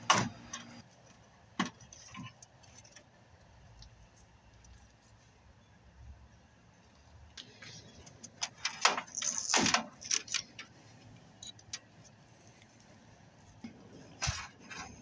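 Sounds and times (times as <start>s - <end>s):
wires and connectors rattling: 7.4s - 12.2s.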